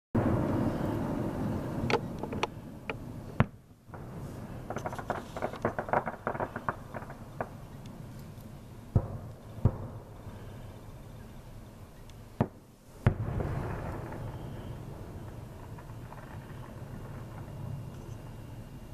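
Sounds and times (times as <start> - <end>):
firework shells bursting: 1.9 - 7.8, 12.4 - 18.5
fireworks crackling: 3.0 - 10.4, 12.3 - 18.9.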